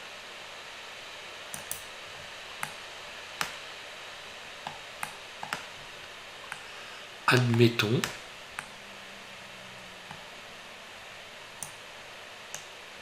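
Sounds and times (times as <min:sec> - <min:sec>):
steady hiss: 0:00.0 - 0:13.0
mouse and keyboard clicks: 0:01.6 - 0:01.9, 0:04.6 - 0:05.7.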